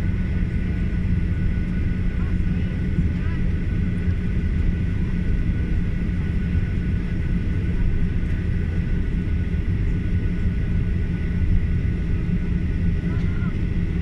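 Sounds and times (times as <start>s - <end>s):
high engine whine: 0.0s - 14.0s
jet engines rumbling: 0.0s - 14.0s.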